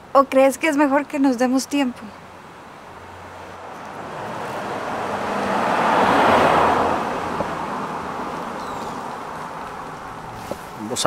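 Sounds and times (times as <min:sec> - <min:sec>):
car passing by: 0:02.8 - 0:11.0.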